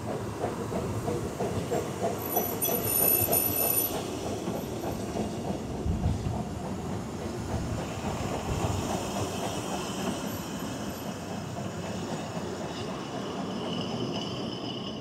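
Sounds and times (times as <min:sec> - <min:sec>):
train wheels rumbling on rails: 0:00.0 - 0:15.0
high wheel squeal: 0:02.2 - 0:04.8, 0:12.7 - 0:15.0.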